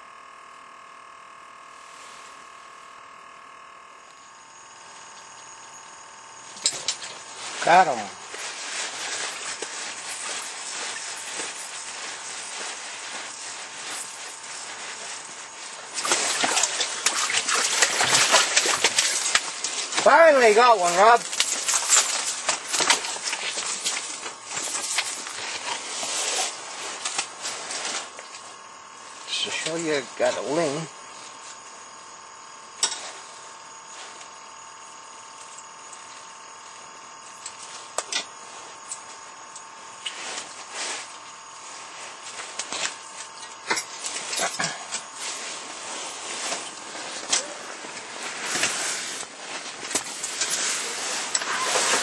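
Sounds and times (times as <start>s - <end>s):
electrical whine: 0.0s - 52.0s
steady hiss: 6.5s - 28.2s
rustling and scraping: 6.5s - 29.6s, 39.9s - 52.0s.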